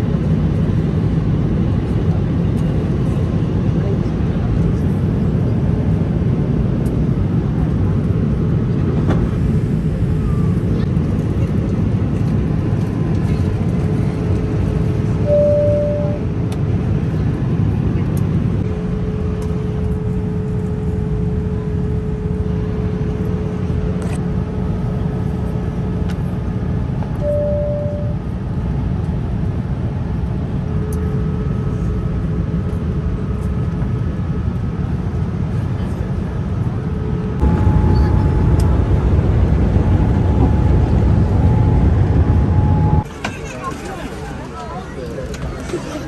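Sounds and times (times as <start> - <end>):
jet cabin rumble: 0.0 - 46.0
short single tone: 15.2 - 16.2, 27.2 - 28.2, 37.4 - 38.8
faint steady hum: 27.0 - 29.1, 36.6 - 43.1.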